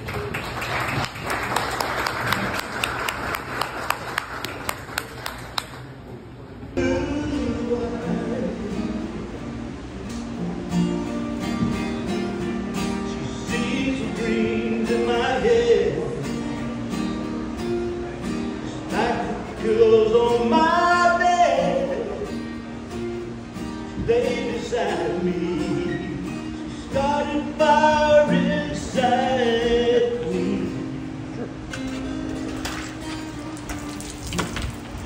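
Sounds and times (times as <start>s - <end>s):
man singing a country ballad: 6.8s - 9.2s, 13.1s - 16.6s, 18.7s - 22.4s, 23.9s - 31.1s
acoustic guitar strumming: 6.8s - 35.0s.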